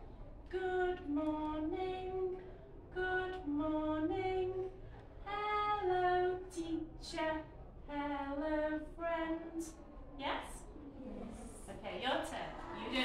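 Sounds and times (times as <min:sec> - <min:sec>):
unaccompanied voices singing: 0:00.0 - 0:11.5.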